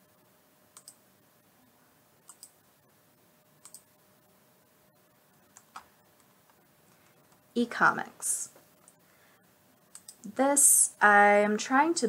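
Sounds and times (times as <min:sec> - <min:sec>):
computer mouse clicks: 0:00.7 - 0:01.0, 0:02.2 - 0:02.6, 0:03.6 - 0:03.9, 0:05.5 - 0:06.6, 0:09.9 - 0:10.4.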